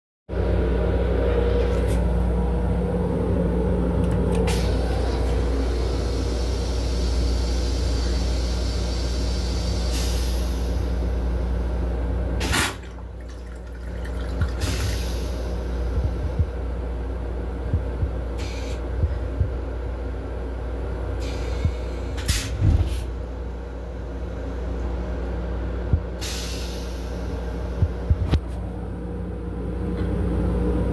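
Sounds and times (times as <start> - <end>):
low hum: 0.3 - 8.6, 10.7 - 22.0
toilet flush whoosh: 12.4 - 15.9
water hissing and dripping: 12.5 - 15.6
rinse water rushing: 12.5 - 15.8.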